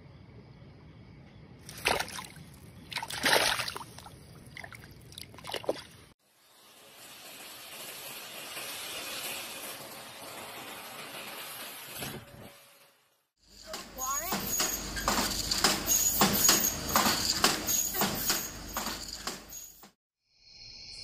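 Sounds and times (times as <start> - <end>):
muddy water splashing: 1.6 - 6.1.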